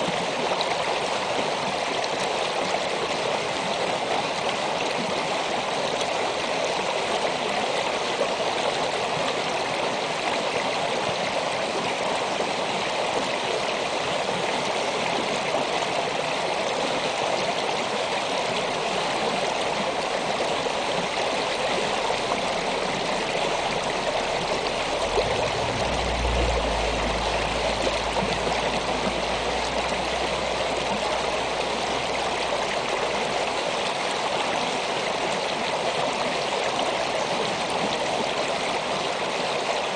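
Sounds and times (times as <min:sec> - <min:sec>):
creek water flowing over rocks: 0:00.0 - 0:39.9
low rumble: 0:20.8 - 0:33.8.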